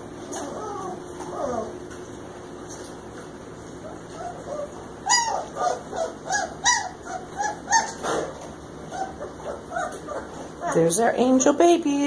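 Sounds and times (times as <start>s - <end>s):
puppies whimpering: 0.1s - 2.1s, 3.8s - 8.1s, 8.8s - 11.0s.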